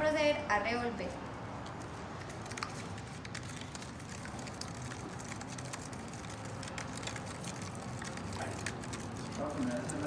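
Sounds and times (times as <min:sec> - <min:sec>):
spoon stirring in plastic cup: 0:02.2 - 0:10.0.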